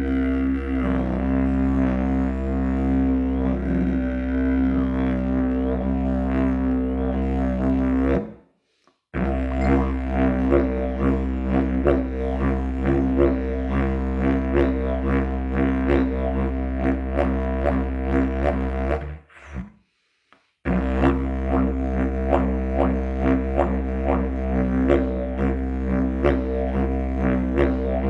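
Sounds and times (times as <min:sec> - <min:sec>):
didgeridoo drone: 0:00.0 - 0:08.2, 0:09.2 - 0:19.6, 0:20.7 - 0:28.0.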